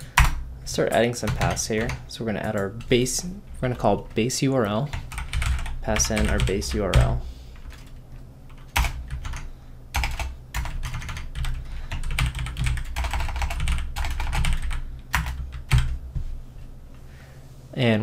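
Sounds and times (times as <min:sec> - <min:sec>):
typing on computer keyboard: 0:05.1 - 0:16.0.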